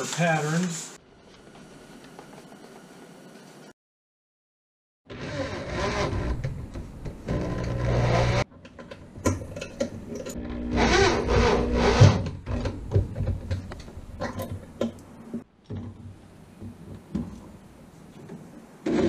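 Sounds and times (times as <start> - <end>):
electric drill driving screw: 5.1 - 6.3, 7.3 - 8.4, 10.4 - 12.2.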